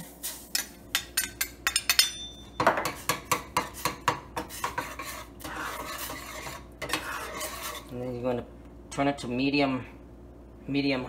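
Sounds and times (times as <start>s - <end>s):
spoon knocking and scraping pan: 0.5s - 7.9s
spoon clinking against glass bowl: 0.6s - 3.4s.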